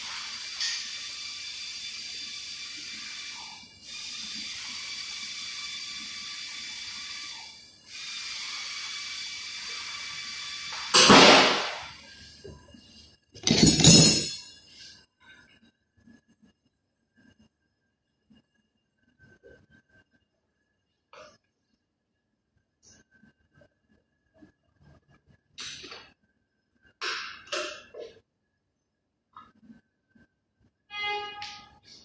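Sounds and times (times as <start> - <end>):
rattling clatter: 13.4 - 14.5.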